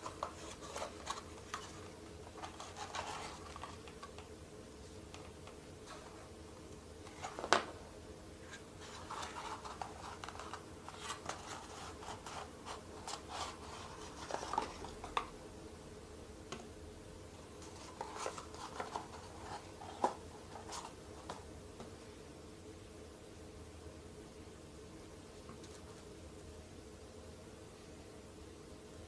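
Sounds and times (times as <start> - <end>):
cardboard rubbing and rustling: 0.0 - 4.2, 8.4 - 15.2, 17.5 - 21.4.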